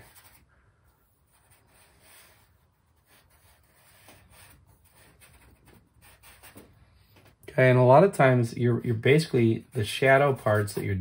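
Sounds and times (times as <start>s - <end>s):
charcoal scratching on paper: 0.0s - 0.5s, 1.1s - 7.0s.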